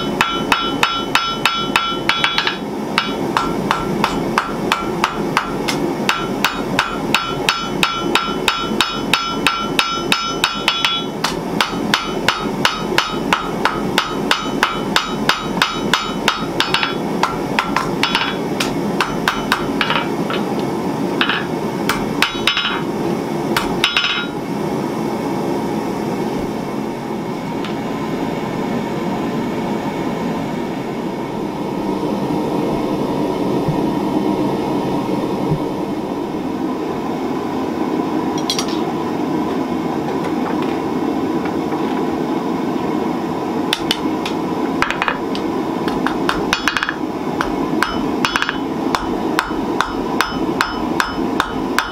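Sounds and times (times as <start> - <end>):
hammer striking steel on anvil: 0.0 - 20.5, 21.2 - 22.9, 23.6 - 24.4, 38.4 - 38.9, 43.7 - 51.9
steady rushing noise: 0.2 - 42.2.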